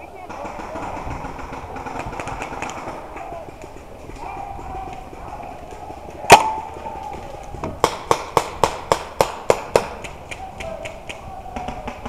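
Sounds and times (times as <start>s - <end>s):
paintball marker firing: 0.3s - 3.8s, 6.3s - 6.8s, 7.6s - 12.0s
sharp crack: 6.3s - 6.7s, 7.8s - 10.4s.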